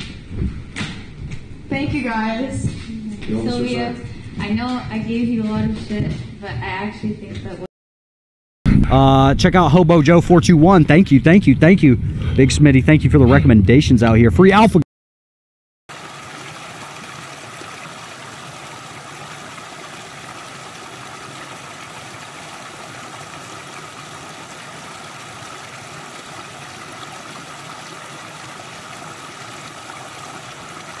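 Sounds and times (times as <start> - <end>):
water rushing over small waterfall: 15.9 - 31.0.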